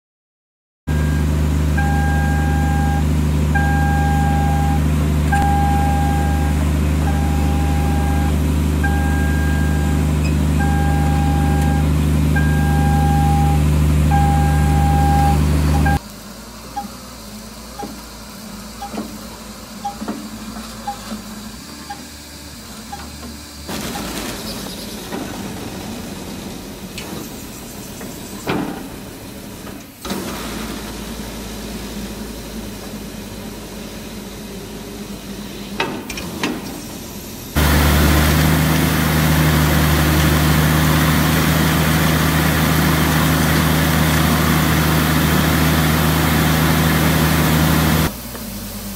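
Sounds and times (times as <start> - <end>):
drill rig humming: 0.9 - 16.0, 36.9 - 48.1
warning beeper: 0.9 - 16.0.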